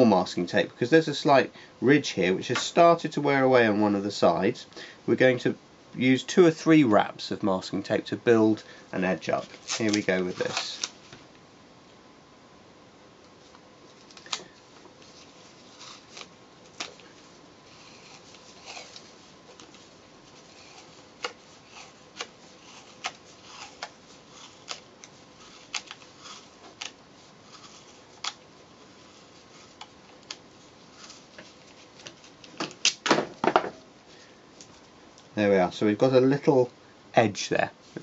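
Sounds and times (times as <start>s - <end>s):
masking tape crackling and snapping: 9.2s - 11.4s, 13.2s - 33.2s.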